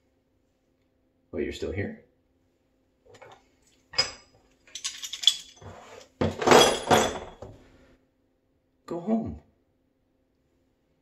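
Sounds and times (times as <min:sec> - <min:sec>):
dishes and cutlery clattering: 0:04.0 - 0:07.5.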